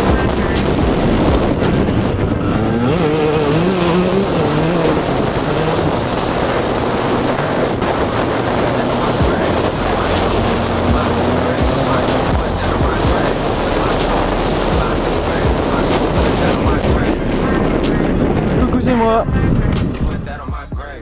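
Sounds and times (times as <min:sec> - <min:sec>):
dirt bike engine under throttle: 0:00.0 - 0:20.0
wind noise on microphone: 0:00.0 - 0:21.0.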